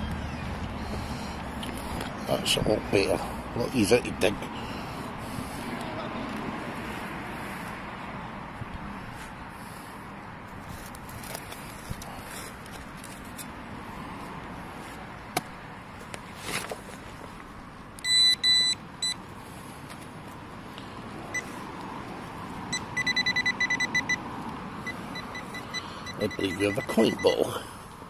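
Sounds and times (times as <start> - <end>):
metal detector pinpointer beeping: 18.0 - 19.2, 22.7 - 24.2, 24.8 - 27.5.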